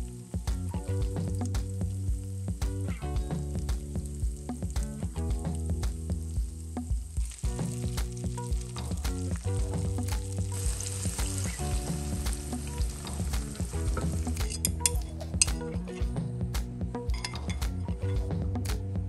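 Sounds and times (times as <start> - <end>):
onions sizzling in oil: 0.0 - 15.6
small crackles and taps: 0.0 - 15.6
egg poured into pan: 7.2 - 15.6
bowl and chopsticks clinking: 17.1 - 17.7.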